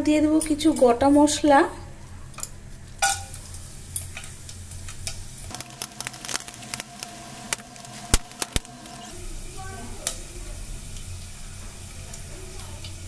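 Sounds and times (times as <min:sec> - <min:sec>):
spices sizzling in hot oil: 0:02.4 - 0:13.0
sharp pops: 0:05.5 - 0:09.1.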